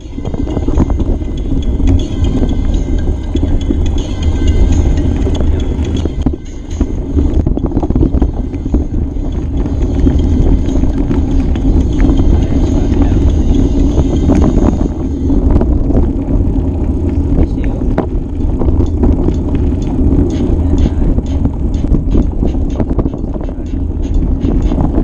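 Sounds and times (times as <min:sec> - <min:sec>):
wind buffeting microphone: 0:00.0 - 0:25.0
bike knocks and rattles: 0:03.3 - 0:25.0
bike clattering on rough trail: 0:08.4 - 0:22.9.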